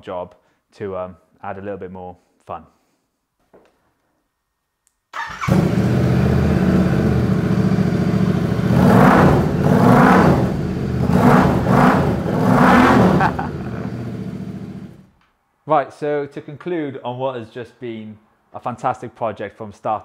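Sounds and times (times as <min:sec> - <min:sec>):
motorcycle engine idling and revving: 0:05.3 - 0:15.1.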